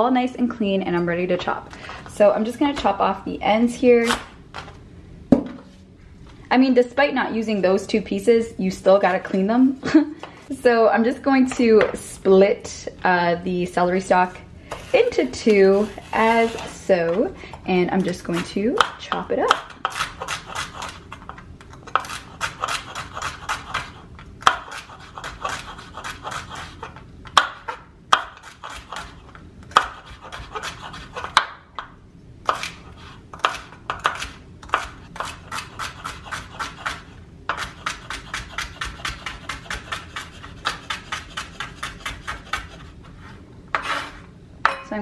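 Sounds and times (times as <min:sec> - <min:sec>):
knife chopping on wooden board: 0:21.9 - 0:26.8, 0:27.4 - 0:29.1, 0:29.7 - 0:31.6, 0:33.4 - 0:42.8.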